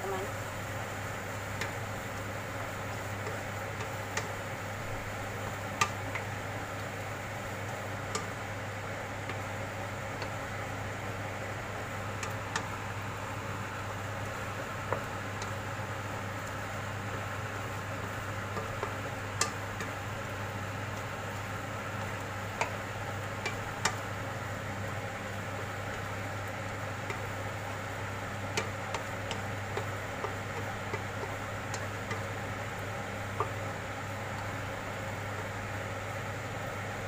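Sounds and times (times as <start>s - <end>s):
chicken sizzling in a pan: 0.0s - 37.0s
steady low hum: 0.0s - 37.0s
wooden spatula stirring: 0.9s - 35.9s
spatula tapping against pan: 1.5s - 1.8s, 2.6s - 4.4s, 5.7s - 6.3s, 8.1s - 8.4s, 9.2s - 10.4s, 12.2s - 12.7s, 14.3s - 15.6s, 18.1s - 20.0s, 22.0s - 24.1s, 25.5s - 35.4s.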